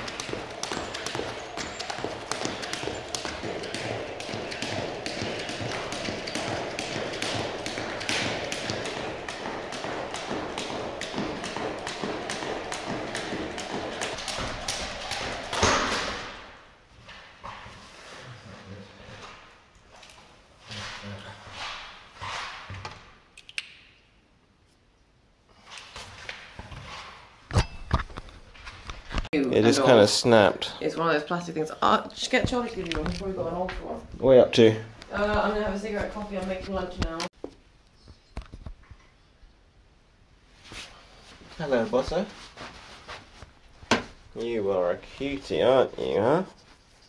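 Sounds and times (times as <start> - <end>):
skipping rope ticking on wooden floor: 0.0 - 16.2.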